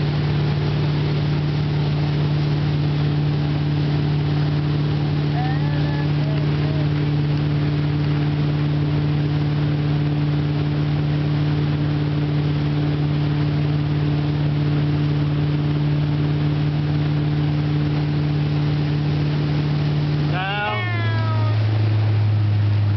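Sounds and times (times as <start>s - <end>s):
rushing water hiss: 0.0s - 10.1s, 16.4s - 22.9s
boat engine drone: 0.0s - 22.9s.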